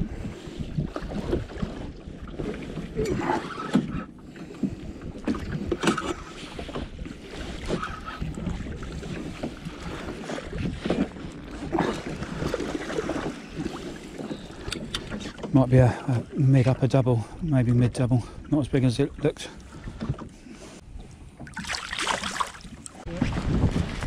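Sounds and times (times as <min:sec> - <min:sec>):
wind rumble on microphone: 0:00.0 - 0:04.0, 0:04.7 - 0:12.7, 0:22.8 - 0:24.0
waves slapping boat hull: 0:00.0 - 0:24.0.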